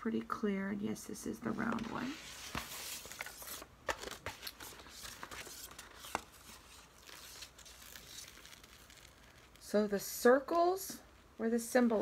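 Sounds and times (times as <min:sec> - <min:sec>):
plastic film crinkling: 0:02.3 - 0:09.8.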